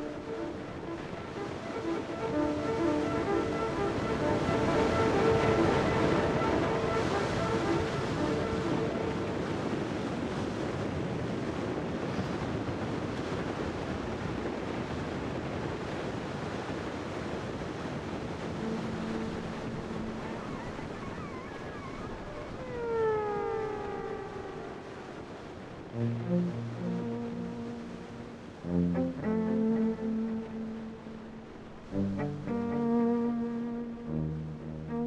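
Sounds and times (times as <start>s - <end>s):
ocean surf breaking: 0.0s - 34.2s
wind on microphone: 0.0s - 35.0s
falling tones: 18.6s - 25.4s.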